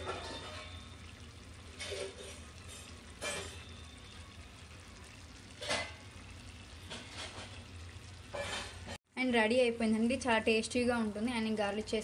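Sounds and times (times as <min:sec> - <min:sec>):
curry simmering in a pan: 0:00.0 - 0:09.0.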